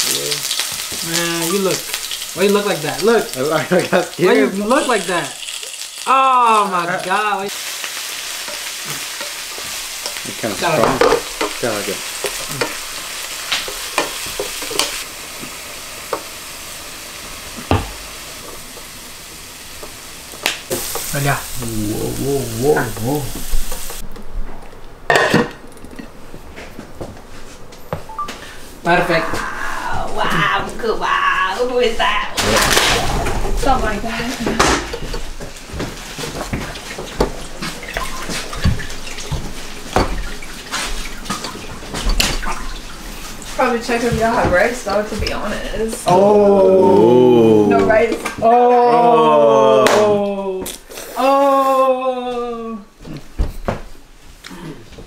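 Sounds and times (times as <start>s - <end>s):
food sizzling in a frying pan: 0.0s - 24.0s, 28.9s - 48.9s
things knocking and clattering in sink: 10.7s - 12.8s, 32.4s - 43.0s, 43.9s - 45.6s
tap water running into sink: 34.6s - 44.7s.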